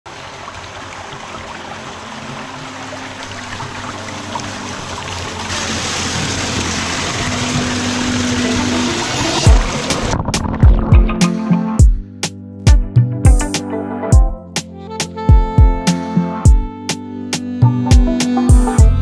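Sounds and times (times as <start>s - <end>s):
creek water rushing over rock: 0.1s - 10.6s.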